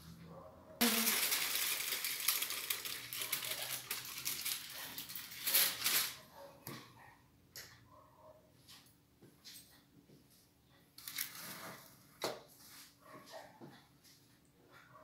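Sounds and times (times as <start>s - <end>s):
aluminum foil crinkling: 0.8s - 6.2s, 11.0s - 11.7s.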